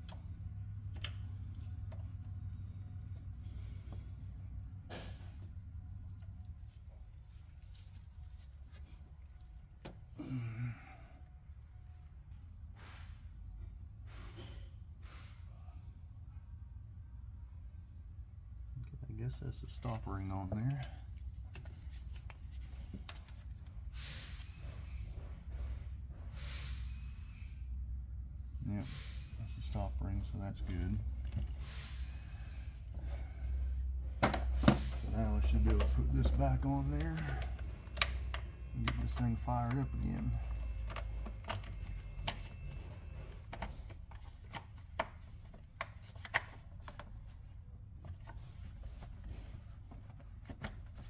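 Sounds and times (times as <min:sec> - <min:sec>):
low steady hum: 0:27.0 - 0:51.0.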